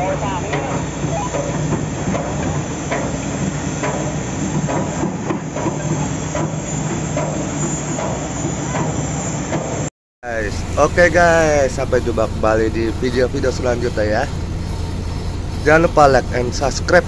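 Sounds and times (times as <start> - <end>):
diesel engine drone: 0.0 - 17.0
constant hiss: 10.3 - 17.0.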